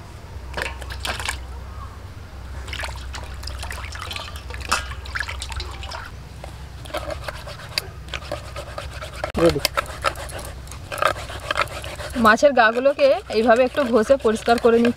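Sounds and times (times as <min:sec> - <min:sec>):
water splashing in metal bowl: 0:00.6 - 0:01.4, 0:02.6 - 0:06.1.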